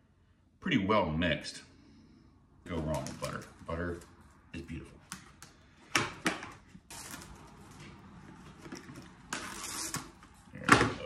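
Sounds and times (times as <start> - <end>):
plastic wrap crinkling rustles: 2.7 - 4.2, 6.6 - 10.4.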